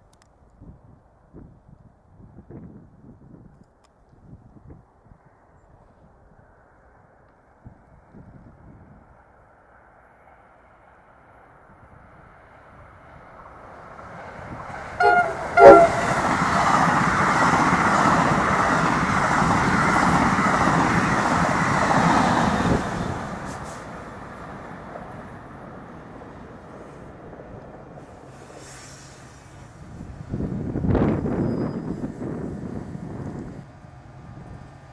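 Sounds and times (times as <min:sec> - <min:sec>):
train passing at speed: 0:06.3 - 0:34.9
train horn blasts: 0:15.0 - 0:16.6.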